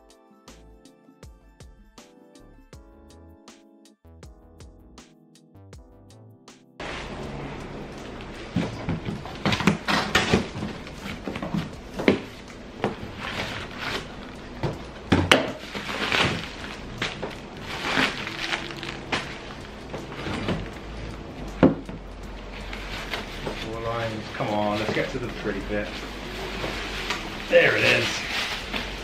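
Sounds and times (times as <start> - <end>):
cardboard and plastic rustling: 6.8 - 29.0
packing tape ripping: 9.2 - 12.4, 13.0 - 14.5, 15.4 - 20.8.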